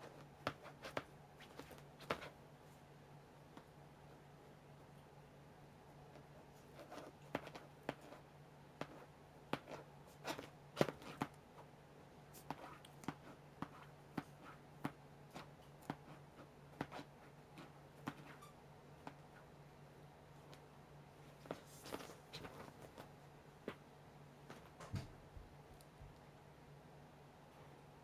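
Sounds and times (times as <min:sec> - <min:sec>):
cat claws scratching fabric: 0:00.0 - 0:02.4, 0:06.1 - 0:11.7, 0:12.3 - 0:19.2
steady low hum: 0:00.0 - 0:28.0.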